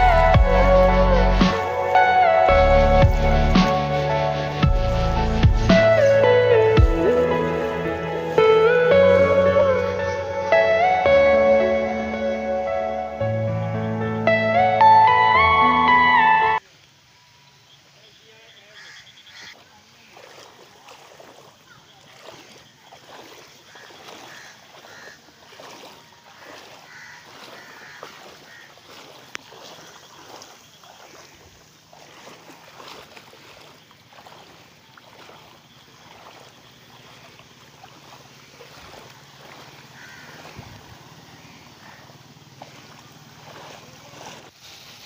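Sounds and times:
footsteps wading through water: 0.0s - 12.8s, 18.8s - 45.0s
faint bird calls: 18.0s - 44.4s.

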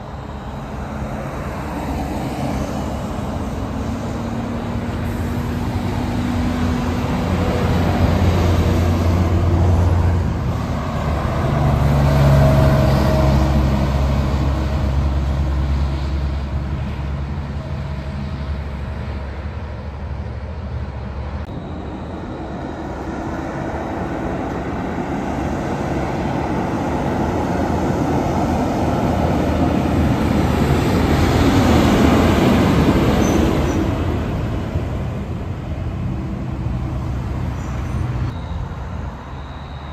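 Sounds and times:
diesel truck engine drone: 0.0s - 39.9s
truck tyre and road noise: 0.0s - 39.9s.

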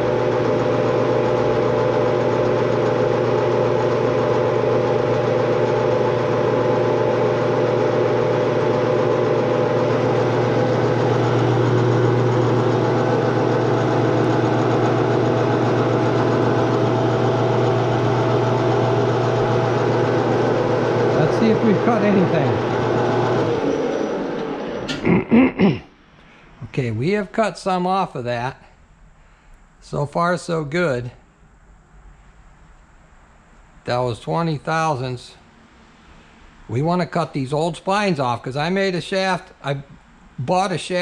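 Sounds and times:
metal lathe humming: 0.0s - 25.0s.

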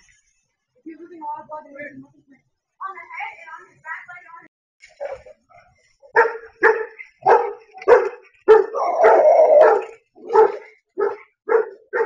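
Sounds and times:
dog barking: 6.1s - 12.0s
dog drawn-out cry: 6.3s - 12.0s.

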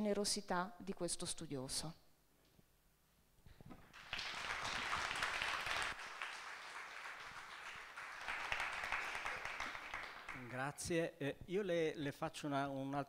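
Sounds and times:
audience applauding: 3.9s - 10.8s.

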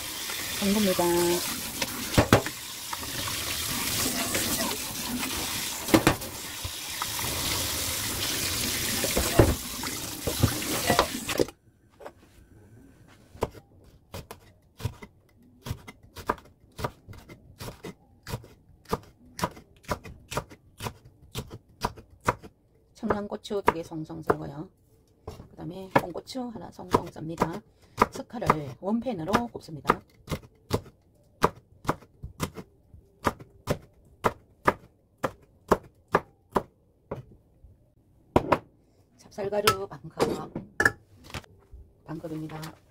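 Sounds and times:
tap water running into sink: 0.0s - 11.4s.

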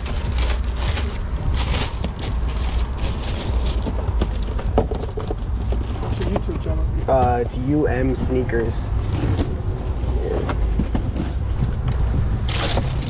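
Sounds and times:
tissue paper crinkling: 0.0s - 4.5s
steady low rumble: 0.0s - 13.0s.

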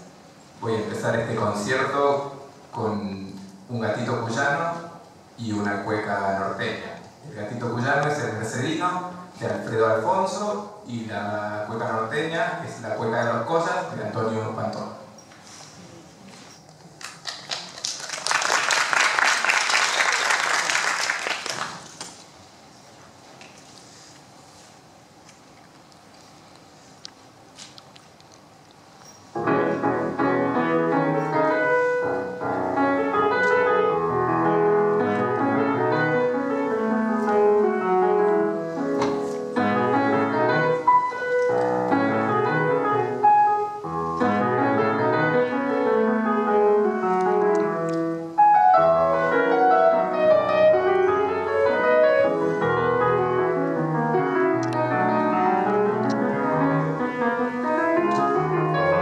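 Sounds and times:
solo piano playing: 29.4s - 59.0s.

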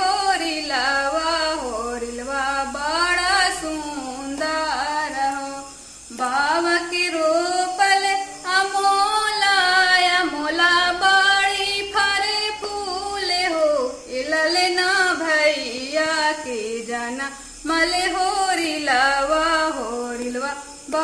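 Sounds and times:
woman singing folk song: 0.0s - 21.0s.

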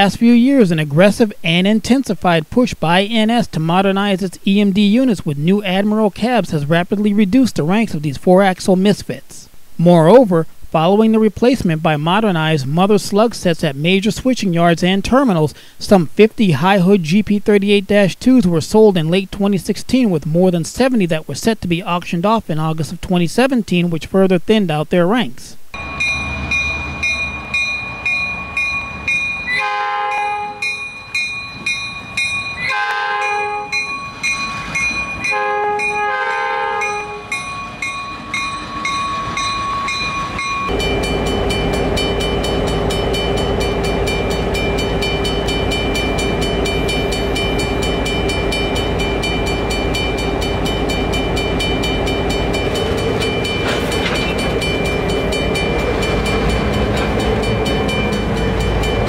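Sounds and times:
locomotive bell ringing: 25.8s - 59.0s
locomotive air horn blasts: 29.6s - 30.7s, 32.7s - 33.8s, 35.3s - 37.4s
diesel engine running: 40.7s - 59.0s.

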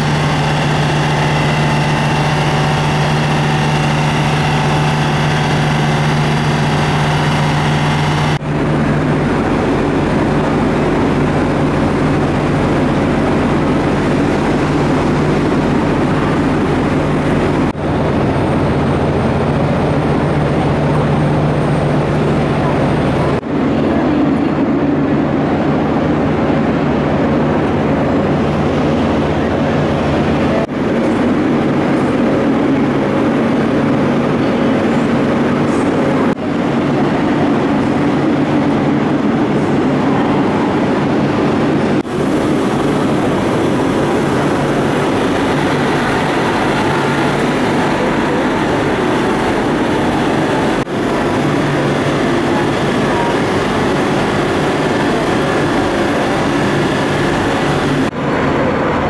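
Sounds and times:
electric train rumble and hum: 0.0s - 59.0s.

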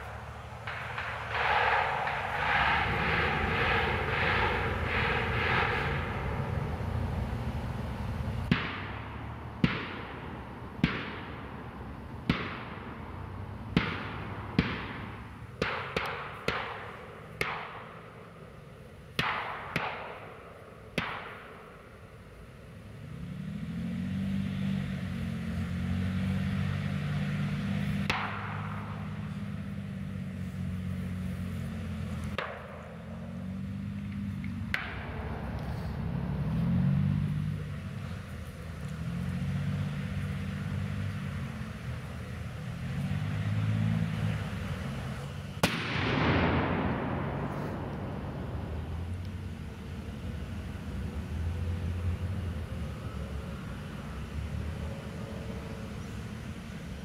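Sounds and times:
sharp echoing bangs: 0.0s - 22.5s, 26.6s - 33.2s, 34.6s - 35.6s, 45.6s - 49.8s
vehicle engine running: 0.0s - 57.0s.

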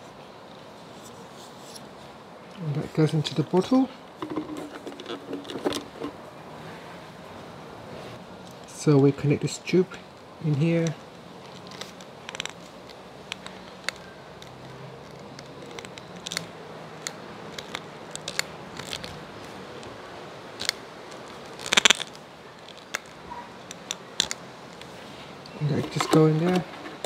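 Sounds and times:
plastic clicks and rubbing: 11.4s - 19.9s, 20.6s - 27.0s.

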